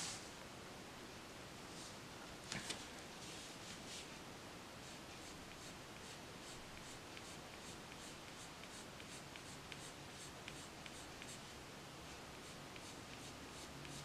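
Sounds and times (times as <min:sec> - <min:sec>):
pencil scratching on paper: 0:04.8 - 0:11.4, 0:12.4 - 0:14.0.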